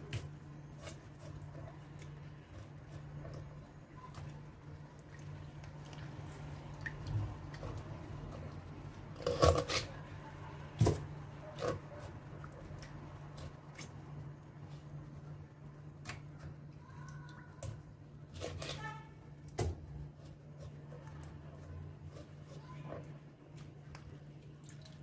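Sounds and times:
knife cutting fish: 9.2 - 10.0, 18.3 - 21.1.

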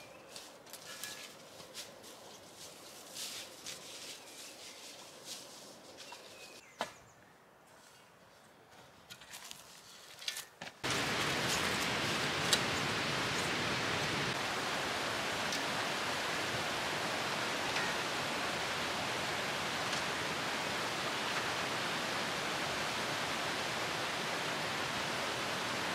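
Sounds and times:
footsteps in dry leaves: 0.0 - 6.6, 9.3 - 10.2
flowing stream water: 10.8 - 25.9.

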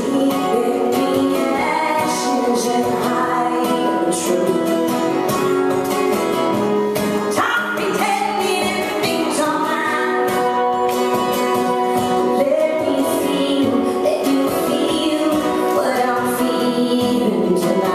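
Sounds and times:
woman singing: 0.0 - 5.3, 7.0 - 17.9
strummed acoustic guitar: 0.0 - 17.9.

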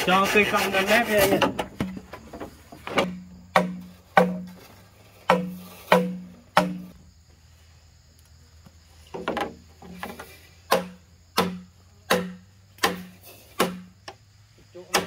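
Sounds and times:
hand tool chopping wood: 2.9 - 7.0, 9.2 - 14.0, 14.8 - 15.0.

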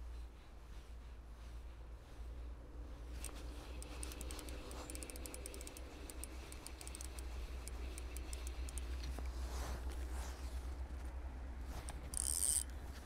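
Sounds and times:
fishing reel whirring and ticking: 3.2 - 8.9, 12.1 - 12.7.

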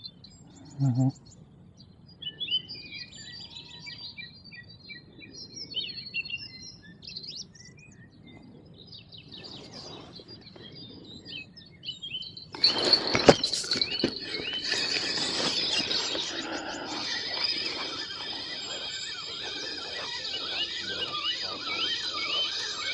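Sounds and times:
songbirds chirping: 0.0 - 22.9
fishing rod handling rustle: 12.6 - 17.2.

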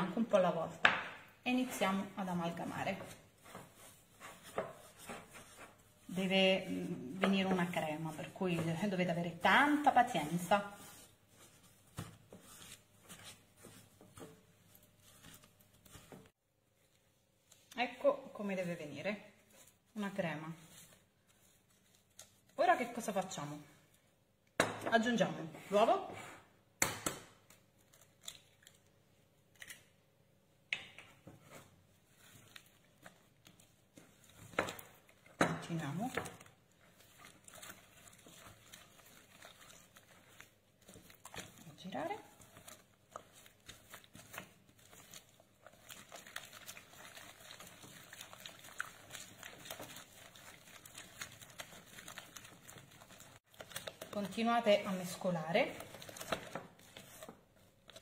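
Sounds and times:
spatula stirring in bowl: 0.0 - 16.9, 31.1 - 58.0.

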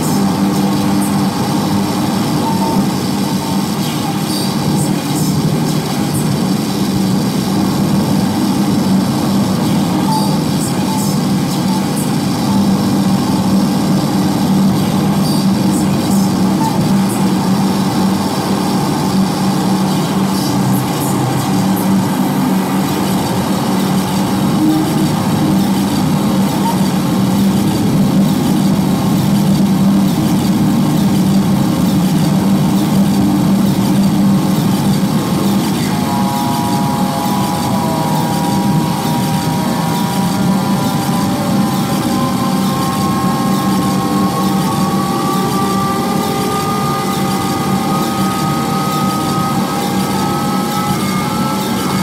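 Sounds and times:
low drone: 0.0 - 52.0
thin high tones: 9.6 - 51.0.

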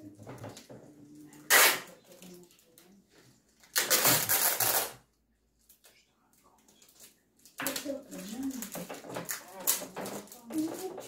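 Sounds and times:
packing tape ripping: 1.5 - 1.9, 3.6 - 5.0.

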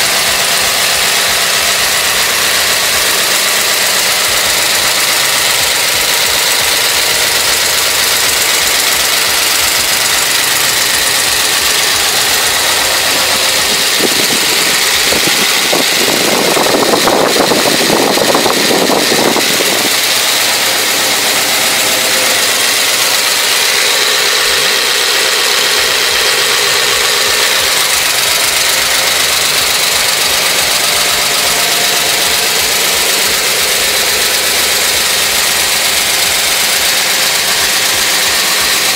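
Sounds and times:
car engine idling: 0.0 - 38.9.

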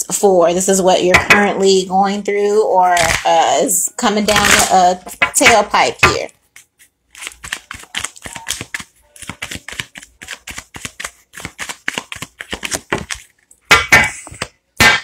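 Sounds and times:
cards being shuffled: 6.4 - 13.5
card rustles: 6.4 - 13.6.

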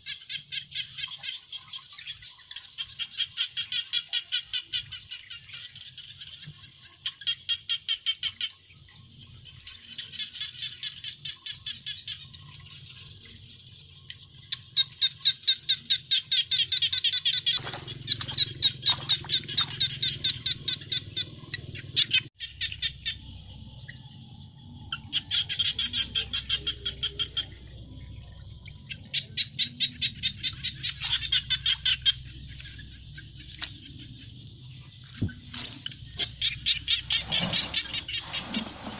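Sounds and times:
high-pitched pulsed animal chirping: 14.2 - 38.3.

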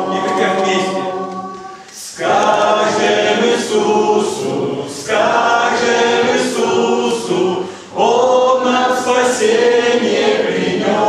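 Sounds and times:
congregation singing unaccompanied: 0.0 - 11.0.

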